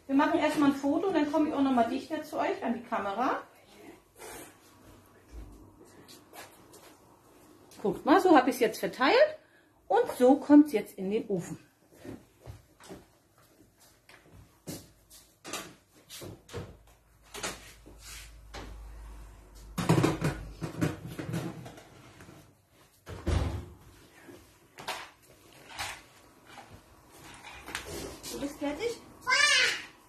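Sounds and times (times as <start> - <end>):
kitchen clatter and knocks: 19.6 - 22.2.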